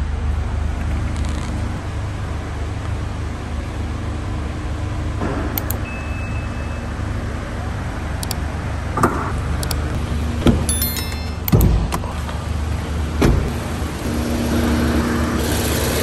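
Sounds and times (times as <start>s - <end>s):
short clicks: 5.6s - 5.8s, 8.2s - 8.4s, 9.6s - 10.0s.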